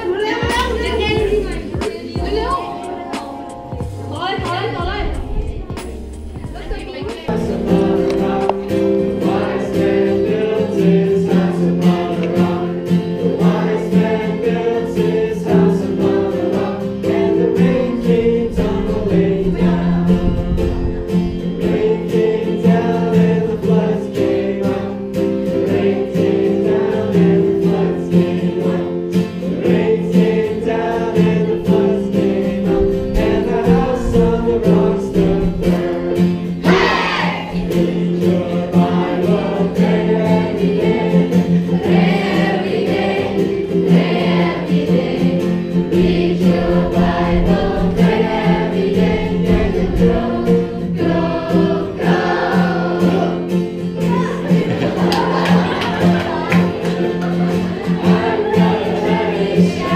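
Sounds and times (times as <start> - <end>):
group singing with music: 0.0 - 59.9.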